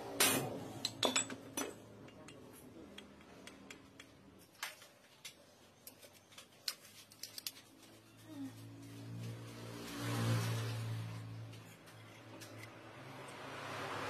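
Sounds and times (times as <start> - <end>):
metal parts and tools clicking: 0.8 - 1.8, 6.6 - 7.8.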